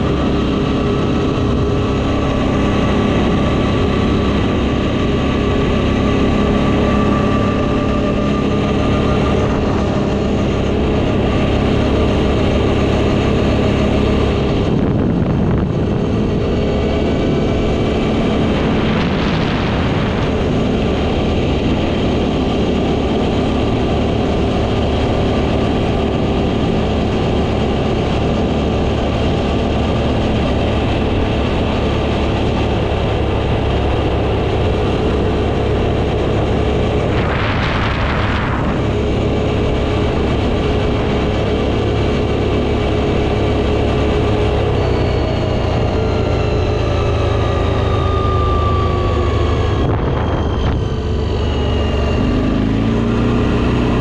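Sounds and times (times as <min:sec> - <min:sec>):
atv engine running: 0:00.0 - 0:54.0
short rushing noise: 0:36.9 - 0:40.2.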